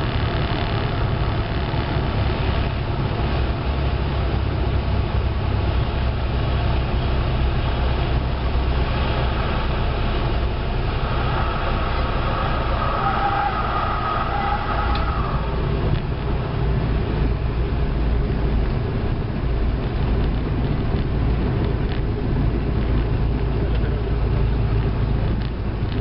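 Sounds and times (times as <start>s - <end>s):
airplane engine and propeller: 0.0s - 13.0s, 14.9s - 26.0s.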